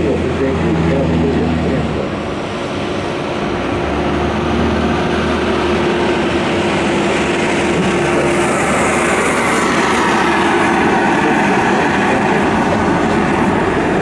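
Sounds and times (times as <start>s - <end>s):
light aircraft engine droning: 0.0s - 14.0s.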